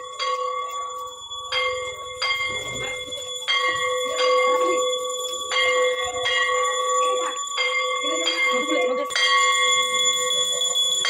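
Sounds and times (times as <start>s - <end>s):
metal bell ringing: 0.0s - 11.0s.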